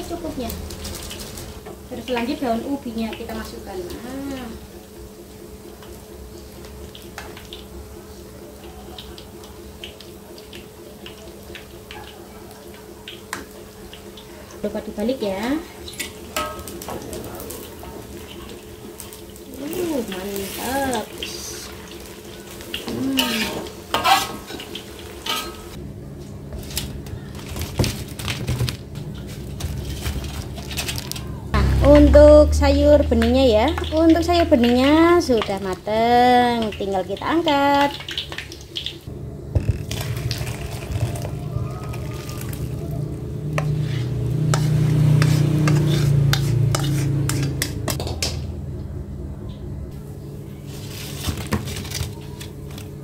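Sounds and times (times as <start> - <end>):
food sizzling in hot oil: 0.0 - 25.8, 31.5 - 47.9
metal spatula scraping wok: 22.6 - 25.8, 43.4 - 47.9
low rumble: 31.4 - 33.6.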